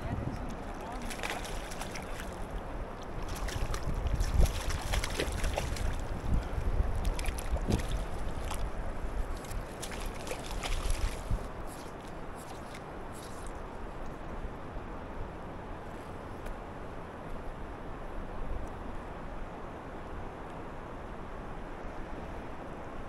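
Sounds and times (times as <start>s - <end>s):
wind gusting on microphone: 0.0s - 14.0s
river water lapping and splashing: 0.0s - 23.0s.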